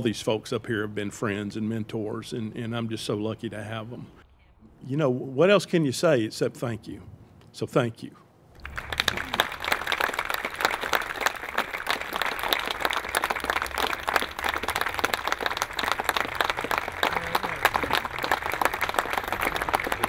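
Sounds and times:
crowd applauding: 8.6s - 20.0s.

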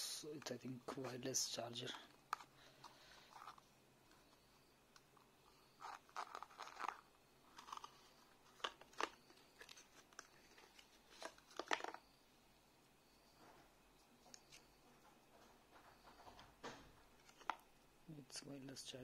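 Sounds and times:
paper packaging rustling: 5.8s - 12.0s.

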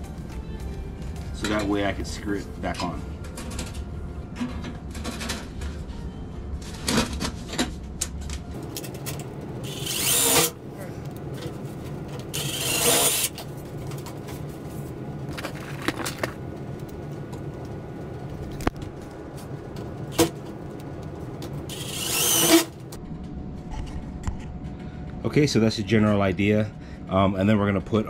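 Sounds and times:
power drill driving screws: 9.6s - 10.6s, 12.4s - 13.3s, 21.7s - 22.7s.

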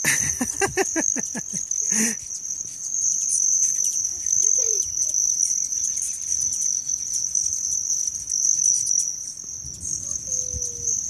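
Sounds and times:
high-pitched insect chorus: 0.0s - 11.0s
wind rumble on microphone: 9.5s - 11.0s.

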